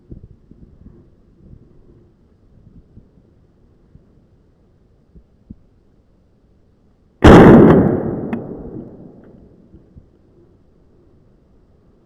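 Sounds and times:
shotgun shot echoing: 7.2s - 9.6s.

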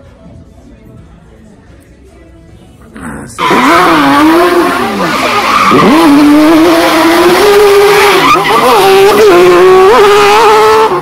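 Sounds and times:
loud vehicle with wavering tone: 3.1s - 11.0s.

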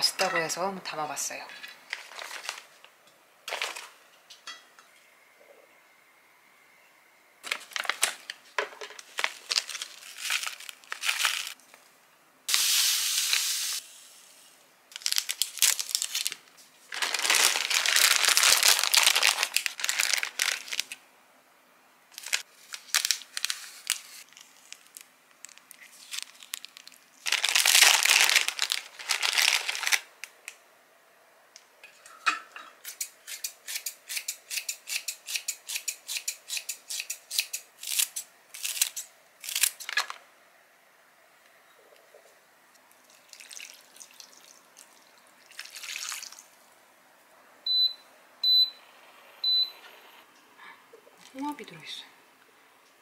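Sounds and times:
plastic packets crinkling and tearing: 1.9s - 2.8s, 7.4s - 8.4s, 9.0s - 11.6s, 14.9s - 21.0s, 22.1s - 30.4s, 37.8s - 40.2s
rustling of shaken contents: 7.4s - 11.6s, 14.9s - 21.0s, 22.2s - 30.1s.

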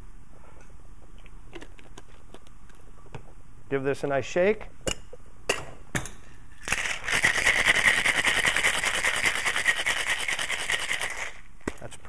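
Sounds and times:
ice rattling in cocktail shaker: 6.6s - 11.4s.

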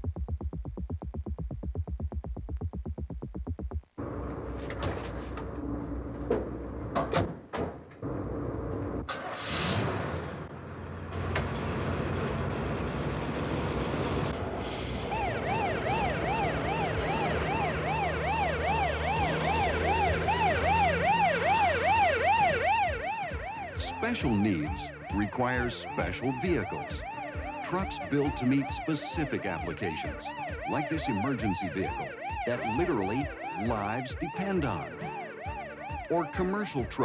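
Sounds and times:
ambulance engine running: 4.0s - 7.2s, 8.0s - 9.4s, 10.3s - 37.0s
electronic siren yelping wail: 15.0s - 37.0s.

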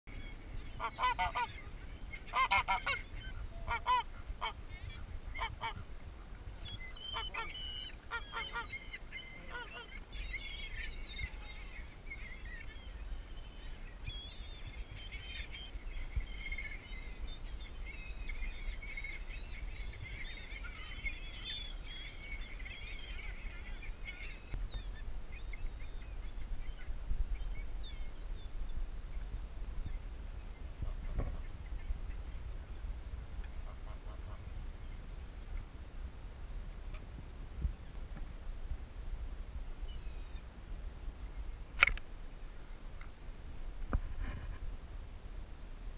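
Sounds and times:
birds chirping: 0.1s - 35.2s
goose honking: 0.8s - 1.7s, 2.3s - 4.6s, 5.3s - 5.8s, 7.1s - 10.0s.

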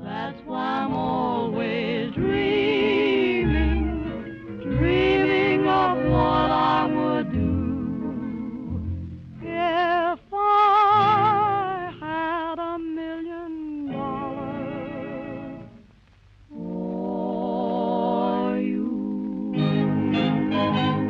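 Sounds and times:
vocal group singing in harmony: 0.0s - 9.0s, 16.5s - 21.0s.

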